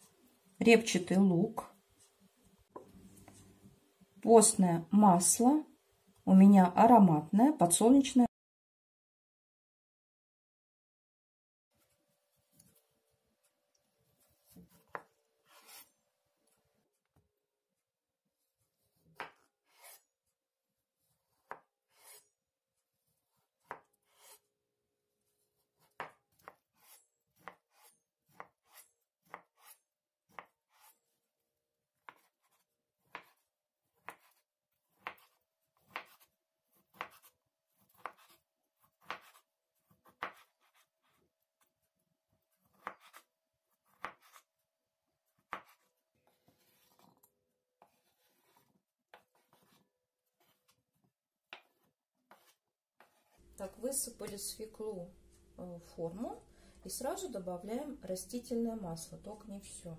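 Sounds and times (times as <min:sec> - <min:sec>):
knife scraping food off board: 0:14.2 - 0:16.0, 0:18.8 - 0:20.1, 0:21.3 - 0:22.3, 0:23.6 - 0:24.5, 0:25.8 - 0:31.0, 0:42.6 - 0:44.5, 0:45.4 - 0:50.8, 0:51.5 - 0:53.4
knife chopping on wooden board: 0:14.4 - 0:15.9, 0:18.8 - 0:20.0, 0:21.0 - 0:22.2, 0:23.3 - 0:24.4, 0:25.8 - 0:30.9, 0:32.0 - 0:33.4, 0:34.0 - 0:41.2, 0:42.6 - 0:44.5, 0:45.4 - 0:47.2, 0:47.8 - 0:49.8, 0:51.5 - 0:53.4.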